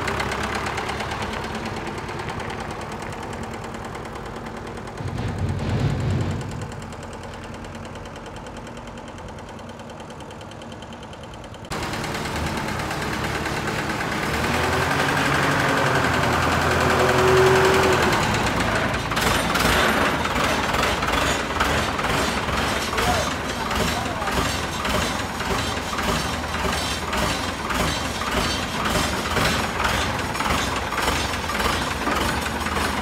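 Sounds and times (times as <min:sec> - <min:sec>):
machine rattling: 0:04.9 - 0:07.3, 0:18.3 - 0:33.0
sharp knocks: 0:05.0 - 0:07.0.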